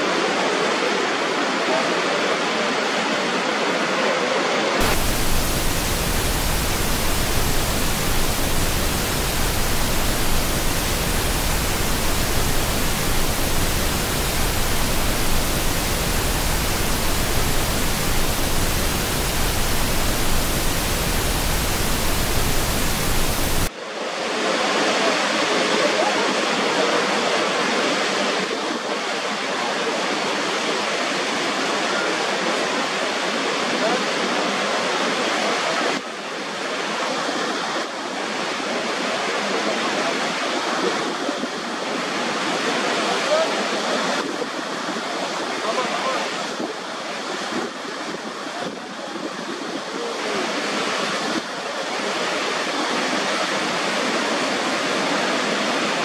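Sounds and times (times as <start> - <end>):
roar of waterfall: 0.0 - 56.0.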